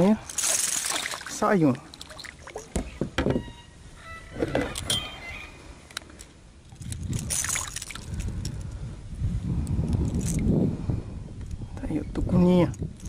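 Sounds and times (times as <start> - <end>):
fish splash: 0.4 - 2.7, 7.2 - 8.2.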